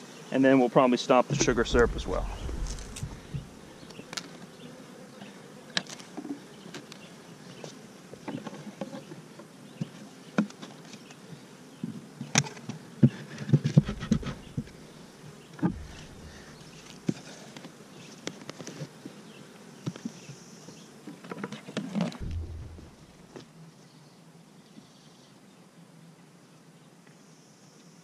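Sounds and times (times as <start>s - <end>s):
honey bees buzzing: 1.3s - 5.7s, 13.0s - 17.9s
wooden knocks and clunks: 1.4s - 3.9s, 13.5s - 14.8s, 15.6s - 17.2s, 22.2s - 23.4s.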